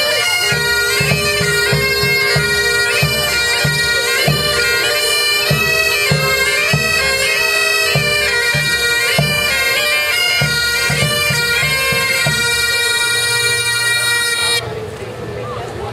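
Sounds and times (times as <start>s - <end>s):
bagpipes playing over drones: 0.0s - 15.4s.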